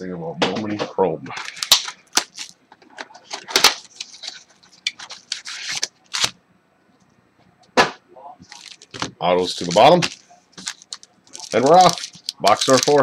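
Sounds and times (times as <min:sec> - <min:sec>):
foil packs crinkling: 0:01.4 - 0:02.6, 0:03.2 - 0:06.4, 0:08.5 - 0:13.0.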